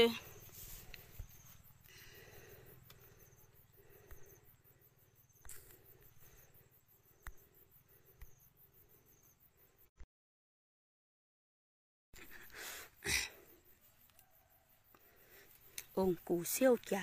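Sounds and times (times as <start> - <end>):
faint clicks: 2.8 - 3.0.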